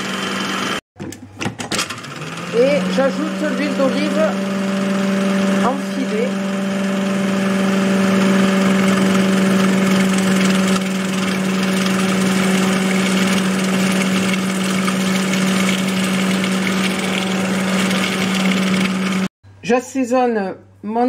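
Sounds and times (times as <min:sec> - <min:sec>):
food processor motor humming: 0:00.0 - 0:00.8, 0:01.8 - 0:19.3.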